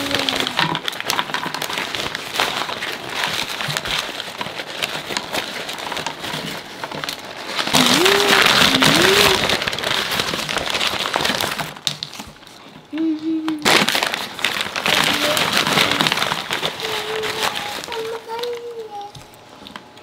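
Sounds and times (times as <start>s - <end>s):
paper bags rustling: 0.0s - 19.9s.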